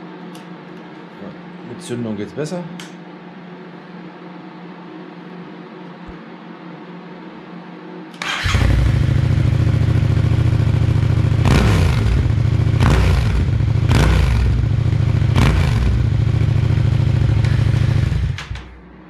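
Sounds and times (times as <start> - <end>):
motorcycle engine starting and revving: 8.2 - 18.8.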